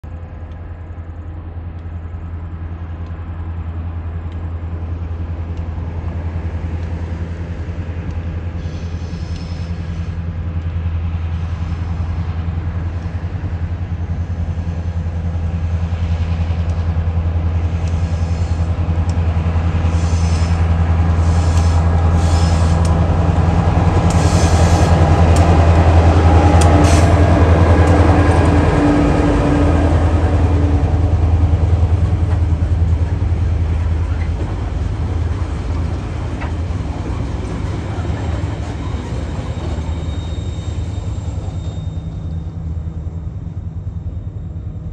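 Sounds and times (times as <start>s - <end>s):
locomotive engine drone: 0.0s - 44.9s
high-pitched wheel squeals: 37.9s - 44.9s.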